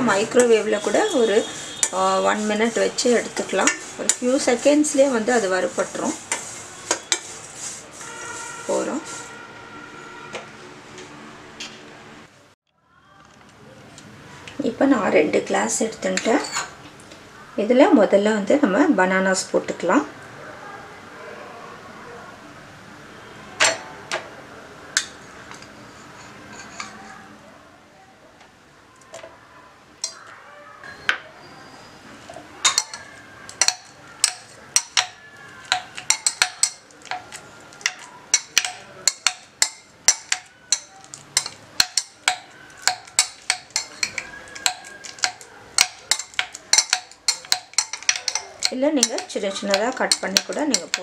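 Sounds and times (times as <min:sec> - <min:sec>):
spoon clinking against glass: 0:32.6 - 0:51.0.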